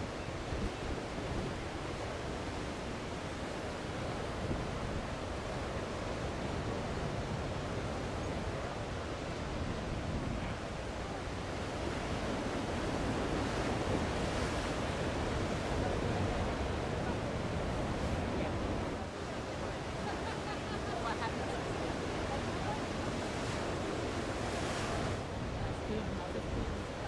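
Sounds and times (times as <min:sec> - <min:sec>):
large ocean waves breaking: 0:00.0 - 0:27.0.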